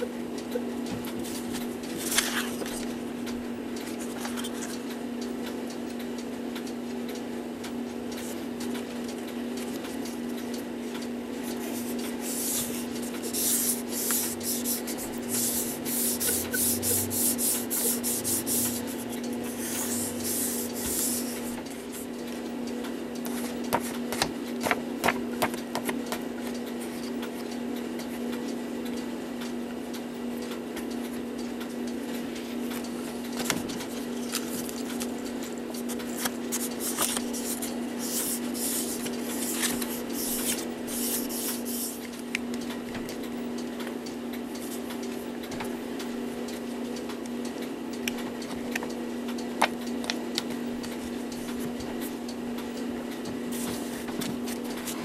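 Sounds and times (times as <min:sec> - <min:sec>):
steady low hum: 0:00.0 - 0:55.0
hand rubbing or sanding surface: 0:11.7 - 0:21.5.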